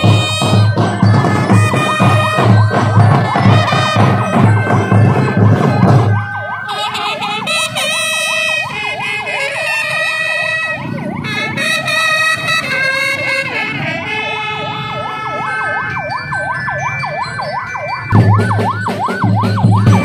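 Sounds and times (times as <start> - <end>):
band music with drumbeat: 0.0 - 20.0
siren yelping: 0.0 - 20.0.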